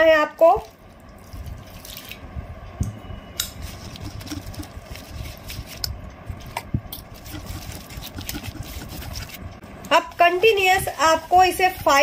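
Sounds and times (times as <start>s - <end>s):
whisk clicking against metal bowl: 7.2s - 9.4s.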